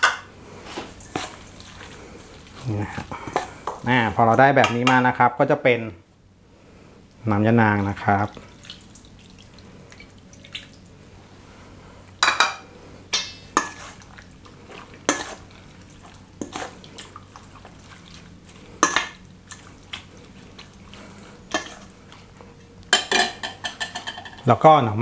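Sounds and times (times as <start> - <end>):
metal spoon scraping steel bowl: 15.1 - 15.4.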